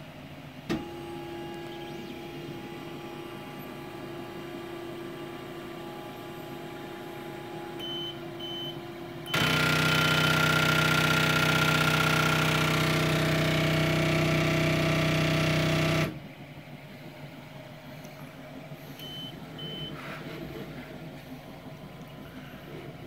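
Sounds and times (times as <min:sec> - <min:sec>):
stepper motor buzzing: 0:09.2 - 0:16.2
short high beeps: 0:19.0 - 0:19.9.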